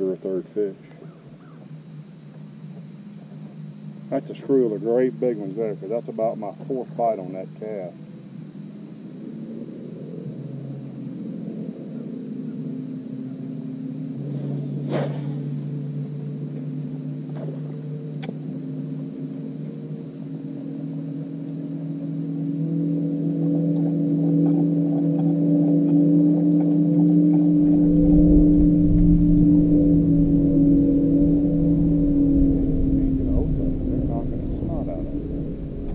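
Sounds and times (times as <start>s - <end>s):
engine droning: 0.0s - 35.9s
deep rumble: 14.0s - 35.9s.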